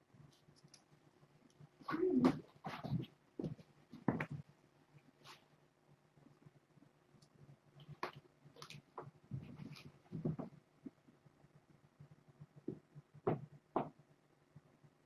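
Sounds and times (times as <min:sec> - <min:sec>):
kittens playing in fabric ball: 0:01.7 - 0:05.7, 0:07.8 - 0:10.7.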